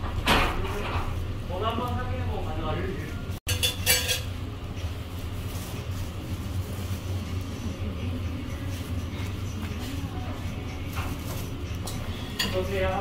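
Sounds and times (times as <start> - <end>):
kitchen machinery hum: 0.0 - 13.0
plastic crinkling: 4.9 - 7.9.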